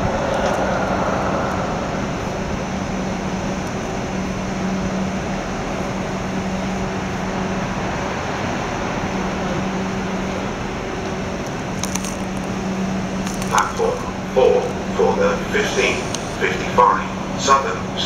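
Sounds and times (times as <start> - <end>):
electric trains rumbling: 0.0 - 18.0
low drone: 0.0 - 18.0.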